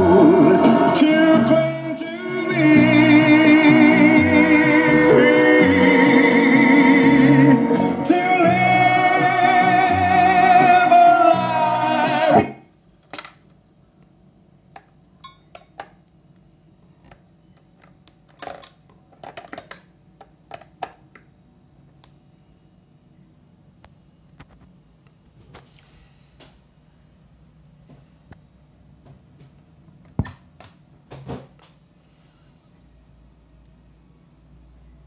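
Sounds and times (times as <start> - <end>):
song with singing and guitar: 0.0 - 12.6
faint low hum: 12.6 - 35.0.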